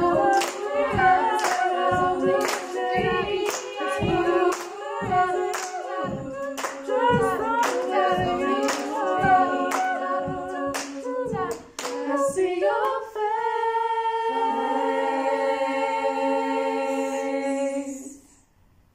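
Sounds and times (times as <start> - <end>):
low thumps: 0.0 - 12.7
women singing in harmony: 0.0 - 18.4
hand claps: 0.3 - 12.2.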